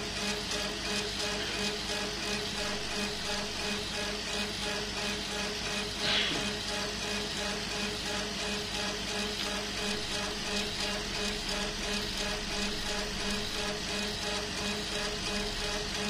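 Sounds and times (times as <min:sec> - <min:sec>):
laser head rhythmic pulse: 0:02.5 - 0:04.0, 0:09.5 - 0:16.0.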